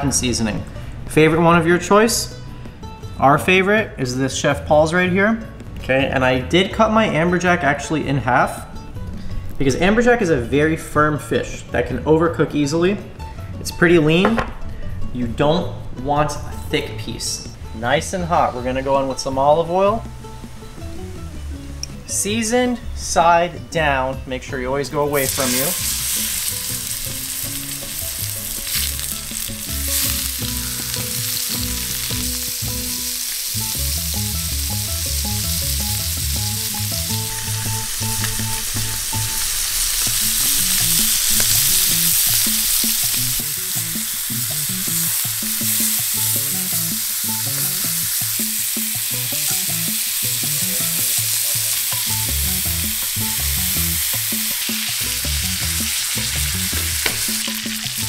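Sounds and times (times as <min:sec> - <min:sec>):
fish searing in frying pan: 0:25.2 - 0:58.0.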